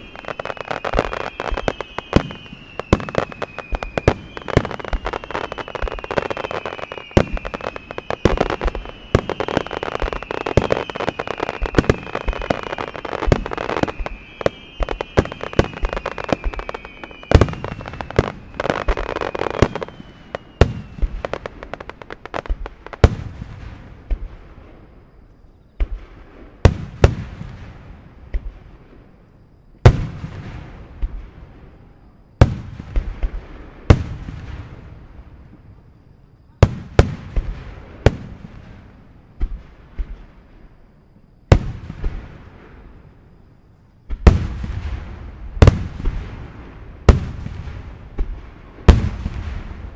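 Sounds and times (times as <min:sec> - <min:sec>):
heavy firework booms: 0:00.0 - 0:25.0, 0:25.8 - 0:29.2, 0:29.8 - 0:35.4, 0:36.5 - 0:40.7, 0:44.0 - 0:49.9
firework bangs: 0:00.0 - 0:25.1, 0:44.0 - 0:49.9
crackling hiss: 0:00.0 - 0:49.9
falling firework whistles: 0:00.0 - 0:49.9.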